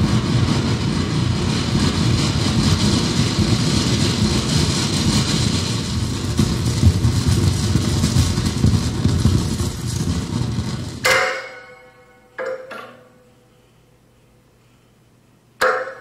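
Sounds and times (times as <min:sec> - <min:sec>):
rumbling electronic noise: 0:00.0 - 0:11.1
sharp pitched strike ringing: 0:11.0 - 0:13.2.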